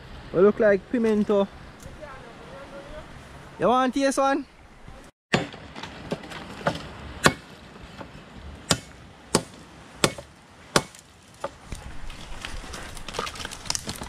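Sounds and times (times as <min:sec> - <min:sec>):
machete chopping branches: 0:05.3 - 0:14.0.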